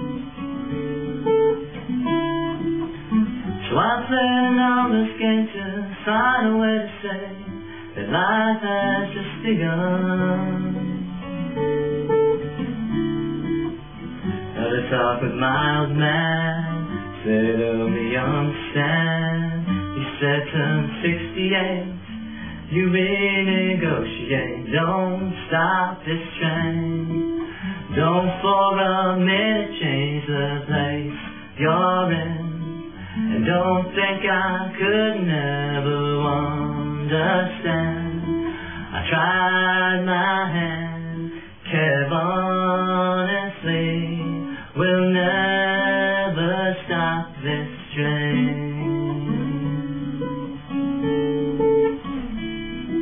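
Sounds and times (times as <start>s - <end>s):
acoustic guitar strumming: 0.0s - 53.0s
man singing: 3.5s - 11.6s, 14.4s - 50.3s.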